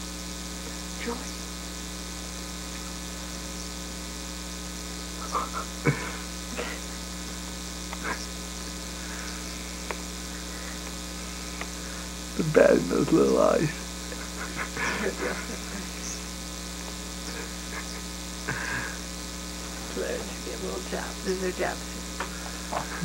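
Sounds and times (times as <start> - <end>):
electrical mains hum: 0.0 - 23.0.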